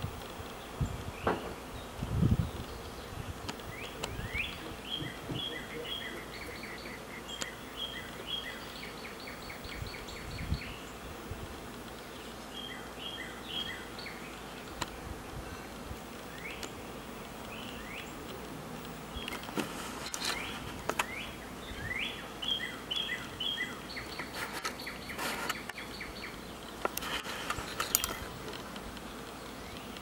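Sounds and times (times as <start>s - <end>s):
bee swarm buzzing: 0.0s - 30.0s
bird chirping: 0.6s - 11.0s, 12.0s - 28.4s.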